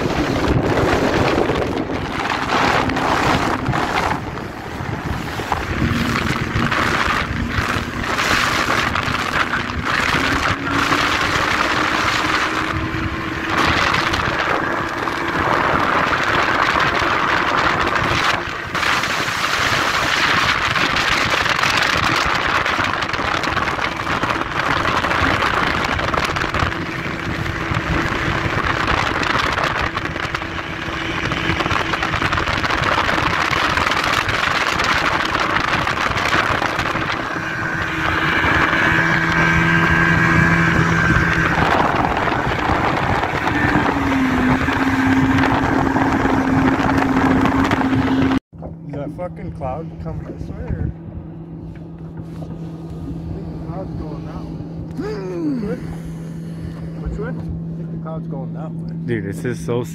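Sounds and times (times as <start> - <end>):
rushing water: 0.0 - 48.4
wind buffeting microphone: 0.0 - 58.2
outboard motor running: 0.0 - 59.9.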